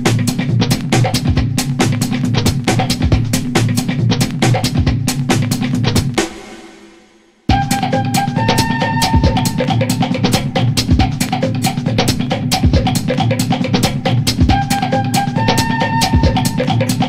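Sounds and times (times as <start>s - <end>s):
drum kit beat: 0.0s - 17.0s
held melodic notes: 7.5s - 10.6s, 14.5s - 17.0s.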